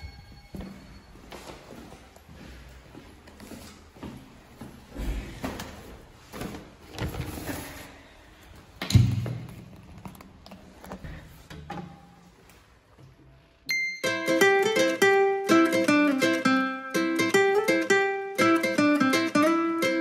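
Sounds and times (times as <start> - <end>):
ukulele music: 13.7 - 20.0.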